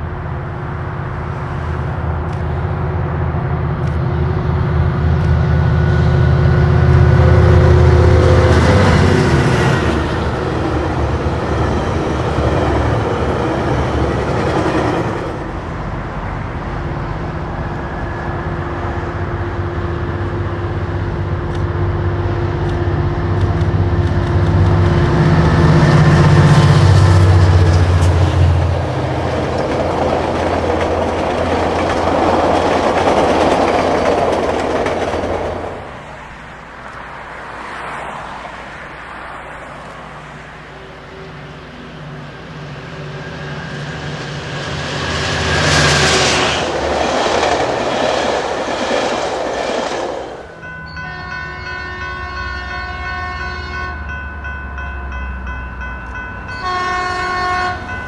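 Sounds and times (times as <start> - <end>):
diesel trains passing: 0.0 - 58.0
multi-note locomotive horn: 5.7 - 9.9, 51.0 - 54.2, 56.5 - 58.0.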